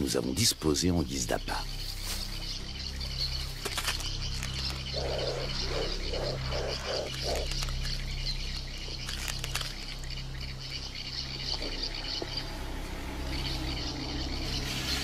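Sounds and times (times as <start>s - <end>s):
high insect chorus: 0.0s - 15.0s
low hum: 2.6s - 15.0s
sharp clicks: 9.0s - 10.0s
low pulses: 10.2s - 15.0s.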